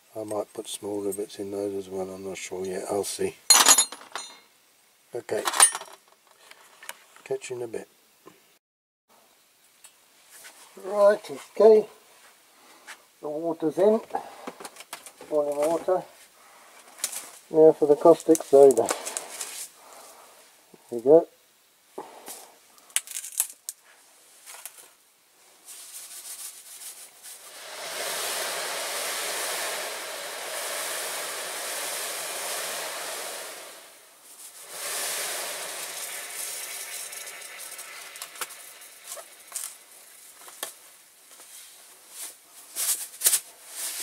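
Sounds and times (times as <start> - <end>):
granules hissing into boiling water: 15.5 - 20.6, 24.4 - 44.0.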